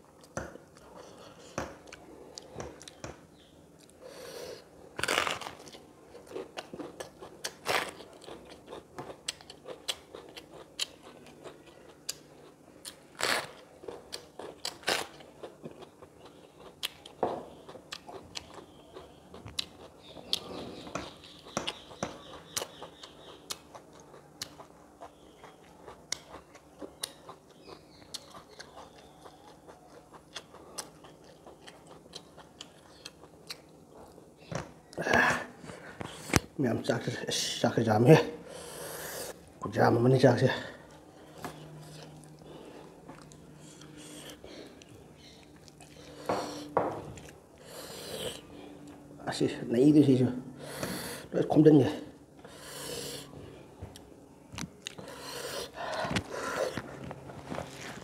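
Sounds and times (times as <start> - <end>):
person chewing and crunching: 4.9 - 35.0, 40.8 - 49.1, 53.9 - 58.0.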